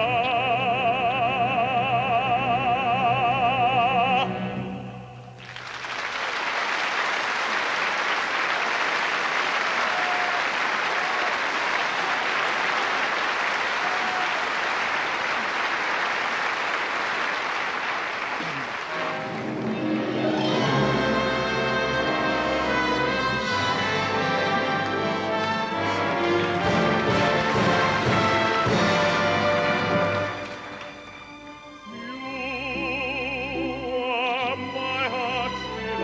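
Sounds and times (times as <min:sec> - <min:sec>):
audience applauding: 0:05.4 - 0:31.4
orchestra playing: 0:18.4 - 0:36.0.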